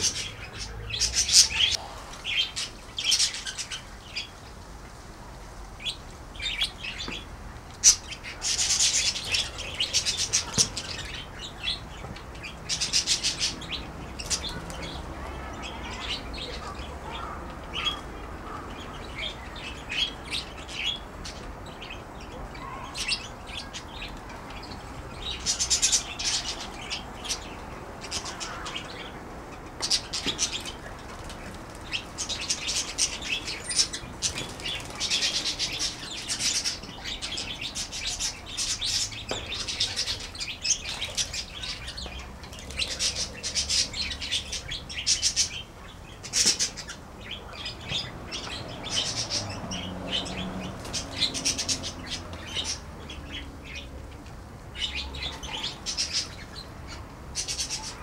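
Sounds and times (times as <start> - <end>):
budgerigars chattering: 0.0 - 4.3.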